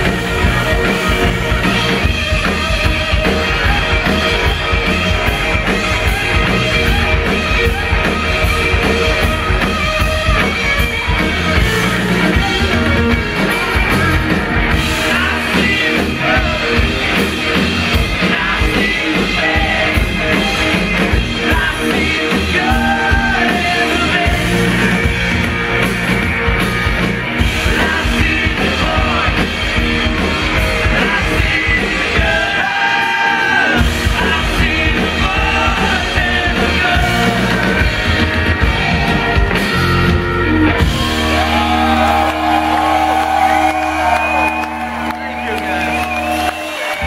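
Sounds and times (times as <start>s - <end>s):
drums: 0.0s - 47.0s
rock band playing: 0.0s - 47.0s
lead singer singing: 14.8s - 25.1s, 27.5s - 39.4s.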